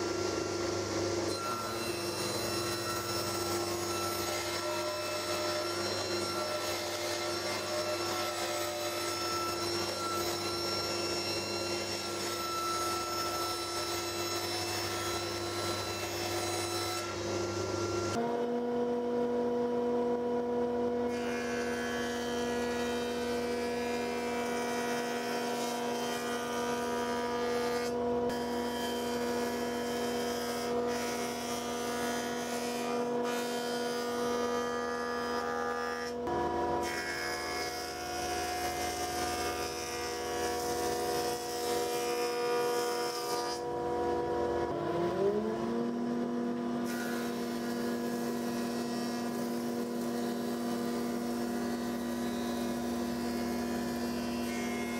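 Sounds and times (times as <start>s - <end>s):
jointer-planer whine and hiss: 0.0s - 18.2s.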